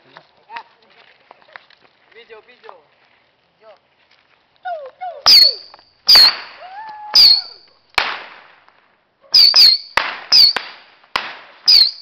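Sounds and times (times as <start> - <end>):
firecracker bangs: 5.3 - 6.6, 7.2 - 8.8, 9.4 - 12.0.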